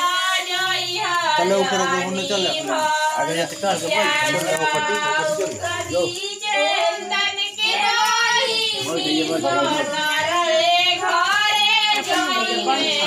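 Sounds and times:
high voices singing together: 0:00.0 - 0:13.0.

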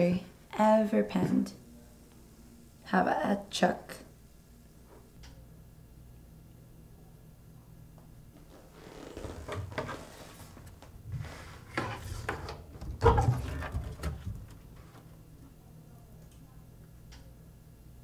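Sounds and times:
low steady hum: 0:00.0 - 0:18.0
container scraping and rustling: 0:09.2 - 0:14.2.

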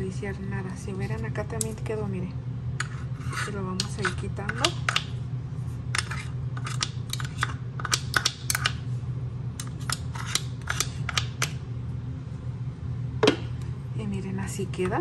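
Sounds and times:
steady low hum: 0:00.0 - 0:15.0
metal spoon scraping blender blades: 0:02.8 - 0:05.0, 0:05.9 - 0:08.8, 0:09.6 - 0:11.5.

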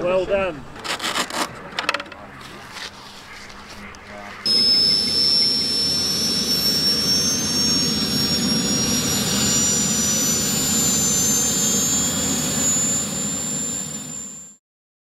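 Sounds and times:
small gas turbine whining: 0:03.8 - 0:14.6.

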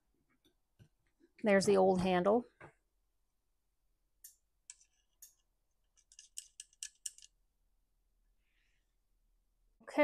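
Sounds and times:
sharp metal clicks: 0:06.0 - 0:07.3.

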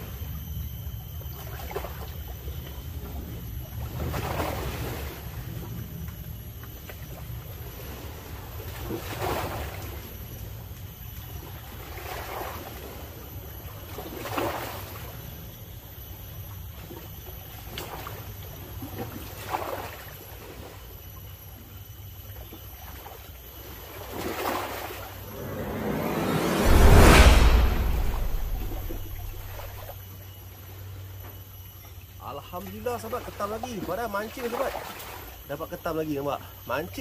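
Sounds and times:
low rumble of wind: 0:25.1 - 0:29.9.

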